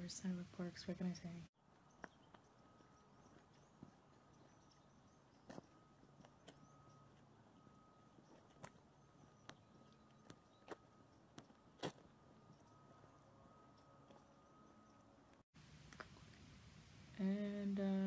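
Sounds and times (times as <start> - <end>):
faint steady tone: 0.0 - 18.0
faint steady hiss: 15.6 - 18.0.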